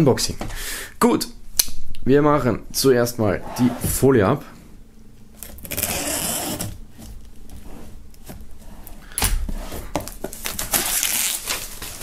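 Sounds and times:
plastic film rustling and crinkling: 9.7 - 12.0
knife slitting plastic wrap: 10.3 - 12.0.

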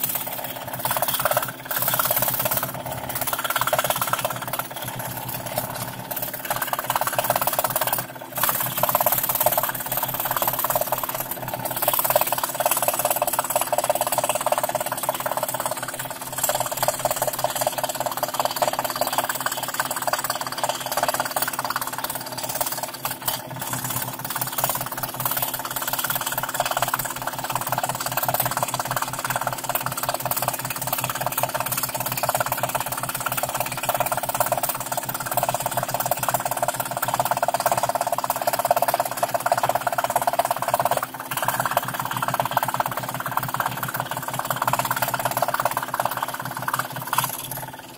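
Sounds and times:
scroll saw cutting plywood: 0.0 - 29.9.

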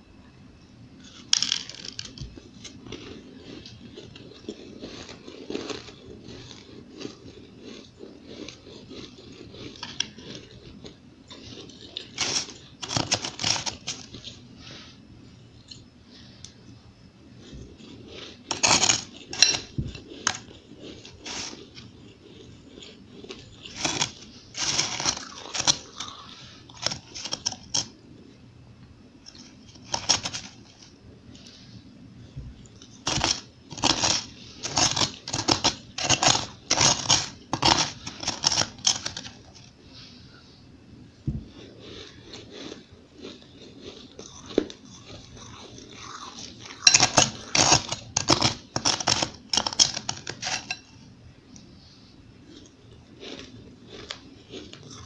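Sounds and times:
crushed ice crunching: 11.5 - 14.3, 18.5 - 21.8, 23.2 - 27.9, 33.0 - 39.6, 44.2 - 50.8
spoon scraping glass bowl: 17.8 - 27.8, 32.7 - 39.5, 43.9 - 50.9.

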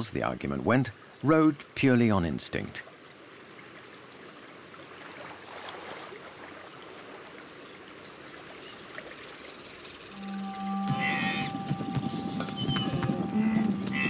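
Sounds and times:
flowing water rushing: 0.0 - 14.0
faint high tones: 10.1 - 14.0
low steady hum: 10.1 - 14.0.

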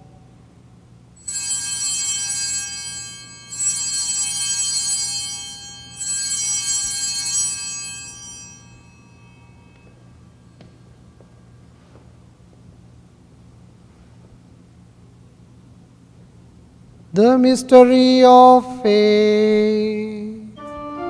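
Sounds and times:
altar bells ringing: 1.2 - 10.6.

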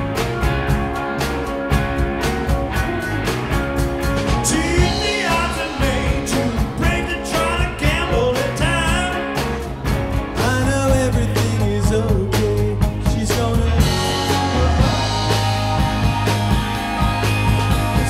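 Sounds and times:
rock band playing: 0.0 - 18.0
man singing: 4.3 - 9.6, 10.4 - 15.8.

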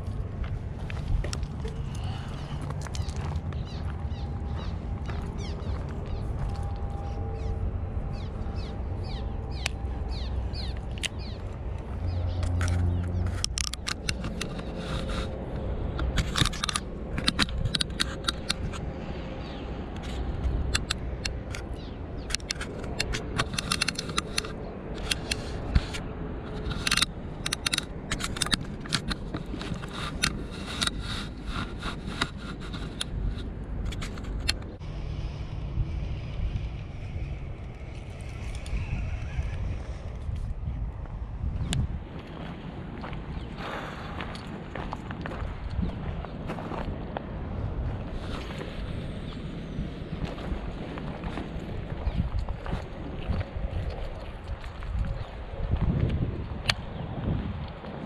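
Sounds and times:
steady low rumble: 0.0 - 58.0
fishing reel clicks and scrapes: 22.3 - 35.2.

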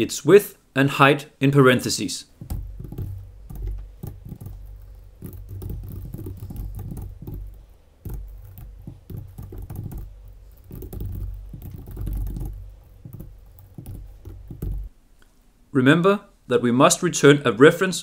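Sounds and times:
computer keyboard typing: 2.4 - 14.9.

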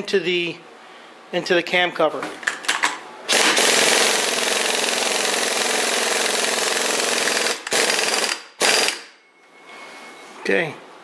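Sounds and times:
impact wrench hammering: 3.3 - 9.1.

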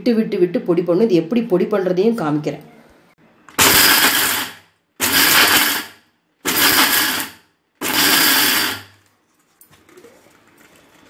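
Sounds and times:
mixer grinder grinding peanuts: 3.6 - 9.0.

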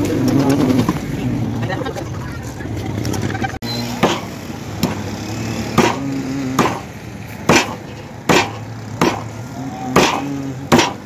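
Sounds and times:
cleaver chopping fish on wood: 5.8 - 6.0, 6.6 - 6.9, 7.5 - 9.3, 10.0 - 11.0.

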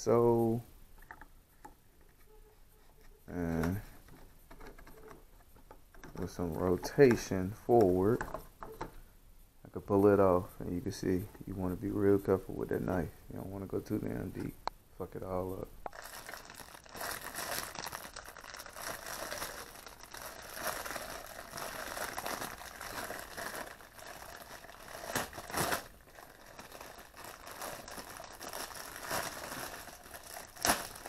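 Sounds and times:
plastic bag crinkling: 15.9 - 31.0.

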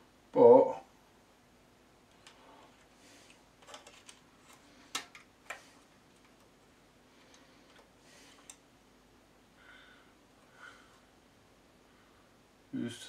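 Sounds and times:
small parts clicking and tapping: 2.1 - 6.6, 7.2 - 8.6.

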